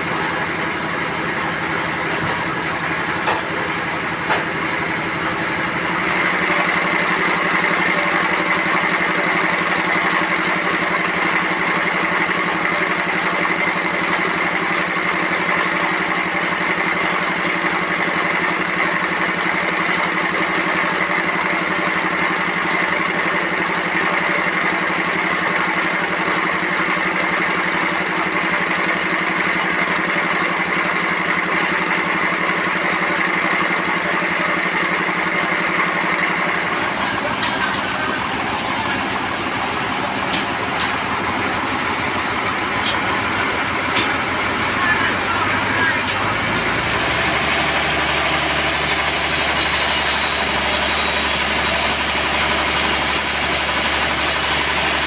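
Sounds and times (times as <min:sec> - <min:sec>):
high machine whine: 0:32.4 - 0:55.0.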